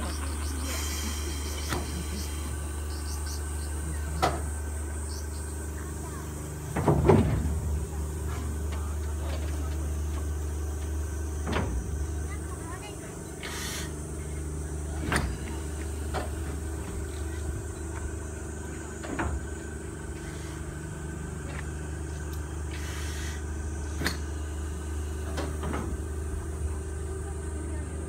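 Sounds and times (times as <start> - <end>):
low mechanical hum: 0.0 - 28.0
short hisses: 13.4 - 14.0, 22.7 - 24.1.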